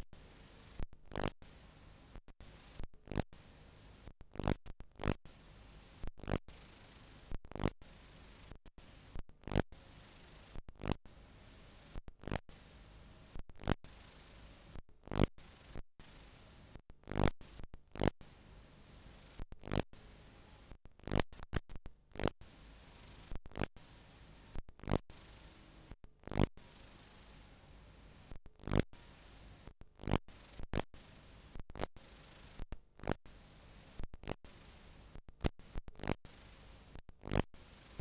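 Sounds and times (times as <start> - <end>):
tape hiss: 3.4 - 4.1, 5.3 - 9.2, 9.8 - 14.8, 15.5 - 16.8, 22.5 - 25.9, 26.6 - 28.4, 29.0 - 29.7, 33.3 - 35.2, 36.3 - 37.0.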